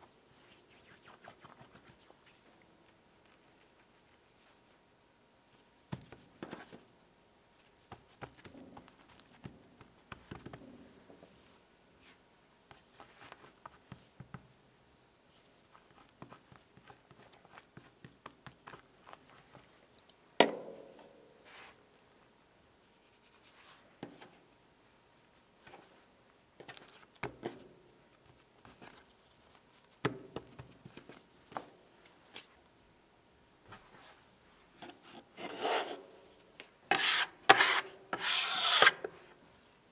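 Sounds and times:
hands patting dough: 7.7 - 10.8, 15.7 - 19.7, 26.6 - 31.8.

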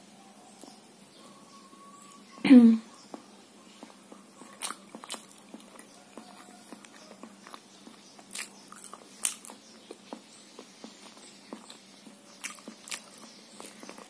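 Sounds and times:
close-up chewing mouth sounds: 3.0 - 14.0.

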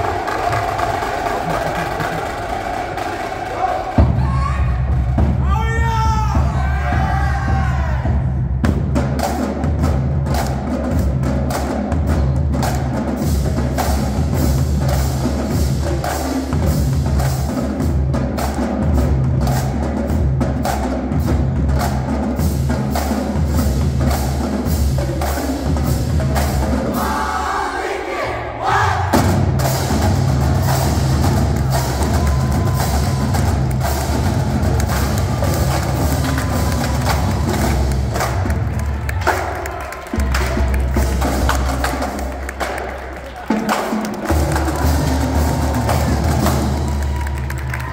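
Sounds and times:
tenor drums: 0.0 - 47.9
pitched bass drums: 4.0 - 27.0, 29.1 - 47.9.

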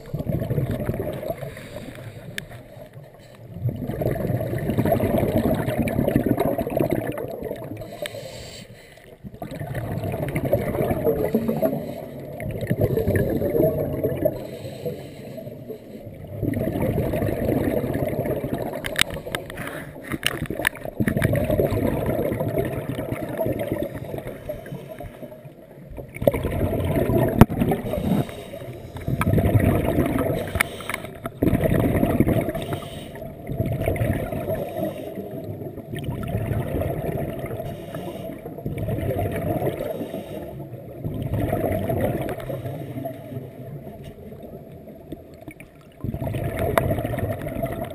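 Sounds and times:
underwater bubbles gurgling: 0.0 - 47.9
diver inhaling: 1.4 - 2.6, 7.8 - 9.2, 14.3 - 16.1, 27.8 - 29.4, 30.4 - 31.3, 32.5 - 33.4, 37.6 - 38.4, 39.8 - 40.7.

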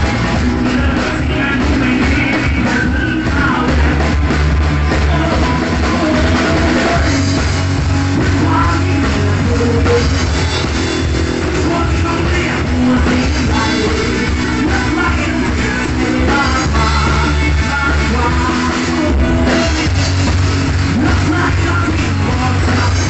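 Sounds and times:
rock band playing: 0.0 - 23.0
man shouting and singing: 0.6 - 4.1.

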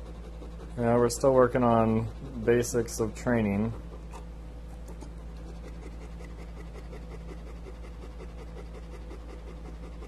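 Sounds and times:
dog panting: 0.0 - 2.9, 4.9 - 10.0
steady low hum: 0.0 - 10.0.

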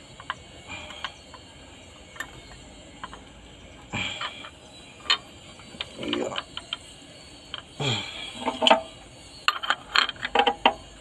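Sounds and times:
scraping rattle: 3.9 - 10.9
metal clicks and knocks: 4.2 - 6.9, 8.4 - 8.9, 9.5 - 10.8.

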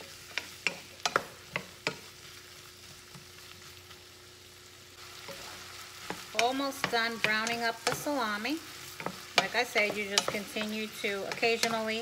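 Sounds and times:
food sizzling in a frying pan: 0.0 - 12.0
wooden spoon knocking on pan: 6.1 - 8.4, 9.0 - 12.0.

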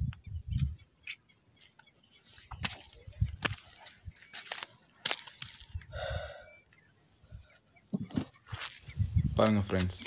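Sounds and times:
sandal footsteps on rock: 2.4 - 5.8.

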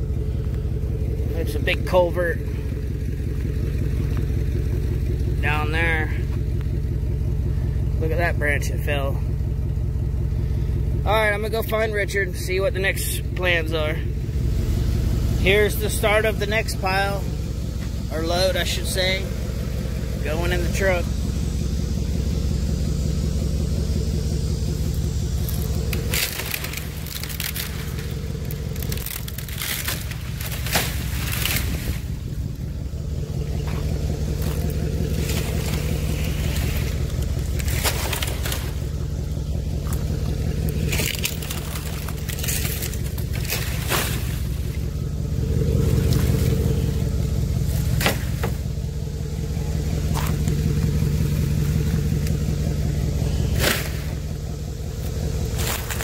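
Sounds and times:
truck engine idling: 0.0 - 56.0
dry palm fronds crackling: 23.6 - 56.0.

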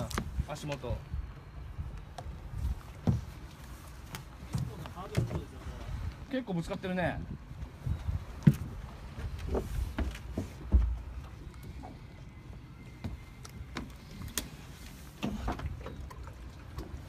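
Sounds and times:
knocks and clicks on a boat: 0.0 - 1.0, 1.9 - 6.0, 8.4 - 12.0.

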